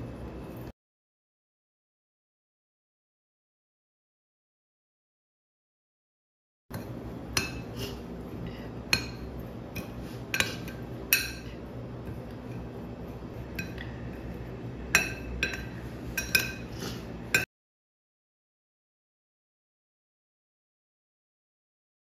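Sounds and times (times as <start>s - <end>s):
spoon clinking on ceramic dish: 6.7s - 7.7s, 8.9s - 11.6s, 13.5s - 13.9s, 14.9s - 16.7s.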